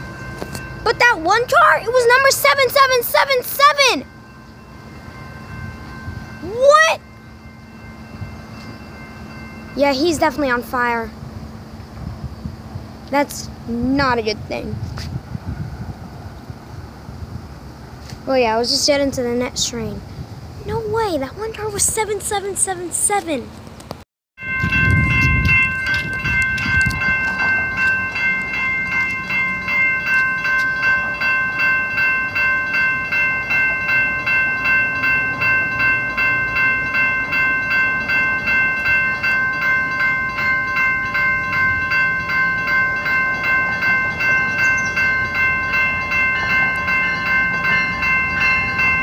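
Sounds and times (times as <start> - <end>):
pulsing ringing: 0.0 - 12.6, 24.4 - 49.0
train rumble: 0.0 - 49.0.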